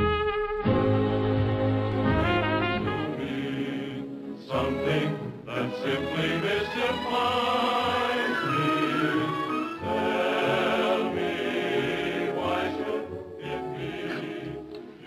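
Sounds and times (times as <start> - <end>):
orchestra playing: 0.0 - 14.8
chorus singing: 1.9 - 15.0.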